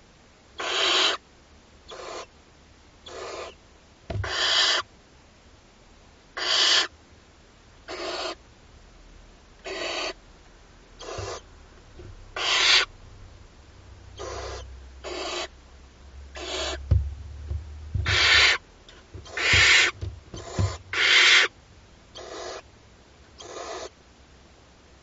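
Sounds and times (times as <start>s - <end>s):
owl chicks hissing begging calls: 0.6s - 1.2s, 1.9s - 2.3s, 3.0s - 3.6s, 4.2s - 4.9s, 6.4s - 6.9s, 7.9s - 8.4s, 9.6s - 10.2s, 11.0s - 11.5s, 12.3s - 12.9s, 14.1s - 15.5s, 16.3s - 16.9s, 18.0s - 21.5s, 22.2s - 22.7s, 23.4s - 24.0s
soft low thumps: 4.1s - 4.3s, 11.2s - 12.4s, 16.2s - 21.2s.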